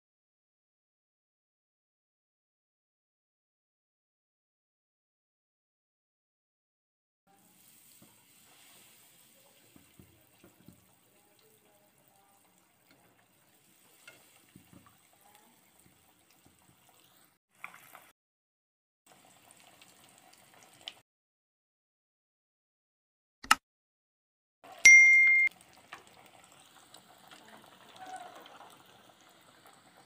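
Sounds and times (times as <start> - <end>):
food sizzling in hot oil: 7.3 - 18.2, 19.1 - 21.0, 24.7 - 30.0.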